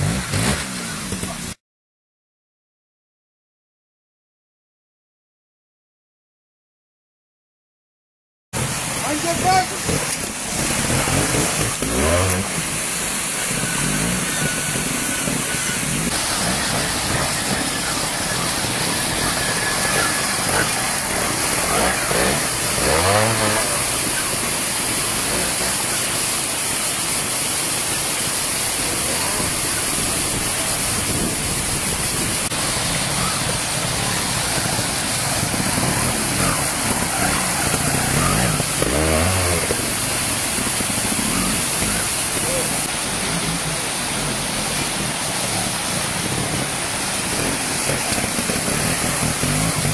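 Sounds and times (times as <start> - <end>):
motorcycle engines revving: 0.0 - 1.6, 8.6 - 49.9
rushing stream water: 8.6 - 49.9.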